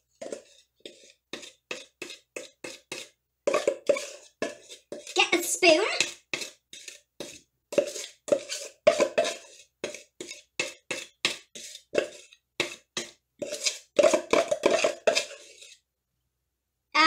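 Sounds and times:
spoon knocking in plastic bowl: 0:07.2 - 0:15.5.

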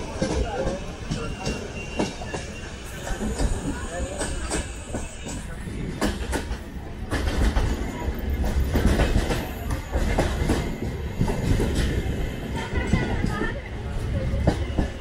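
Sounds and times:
train rumble: 0:00.0 - 0:15.0.

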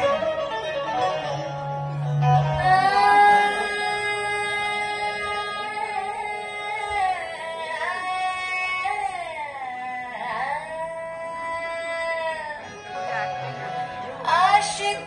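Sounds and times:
instrumental backing: 0:00.0 - 0:15.0
woman singing a long note: 0:02.5 - 0:12.6.

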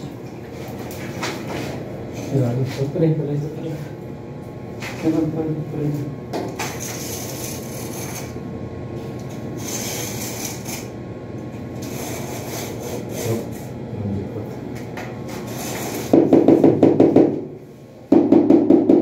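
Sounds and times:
steady low hum: 0:00.0 - 0:19.0
tile scraping against wall: 0:06.6 - 0:08.4, 0:09.6 - 0:10.9, 0:11.8 - 0:13.7, 0:15.3 - 0:16.3.

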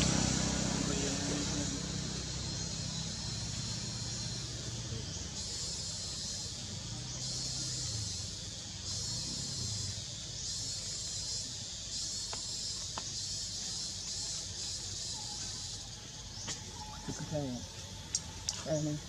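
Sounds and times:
insects buzzing shrilly: 0:00.0 - 0:19.0
faint clicks: 0:18.0 - 0:18.7.

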